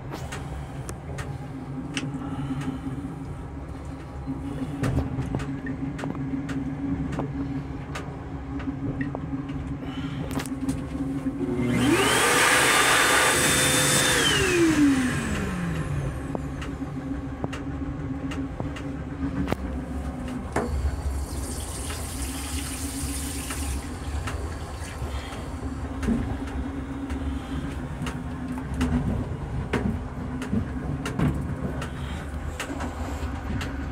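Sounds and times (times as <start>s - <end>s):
steady railcar hum: 0.0s - 12.6s, 13.4s - 33.9s
motor with rushing hiss: 11.6s - 15.8s.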